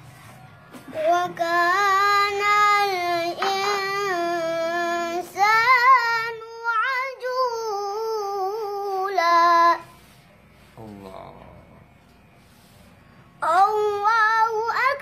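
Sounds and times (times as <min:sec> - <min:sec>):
boy reciting melodically: 0:00.9 - 0:10.0, 0:13.4 - 0:15.0.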